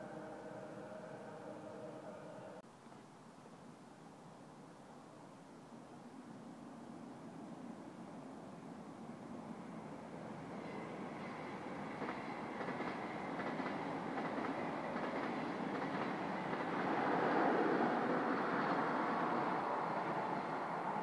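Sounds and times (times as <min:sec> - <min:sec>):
train passing: 0:00.0 - 0:02.6, 0:07.0 - 0:21.0
wheels clicking over rail joints: 0:11.8 - 0:17.2.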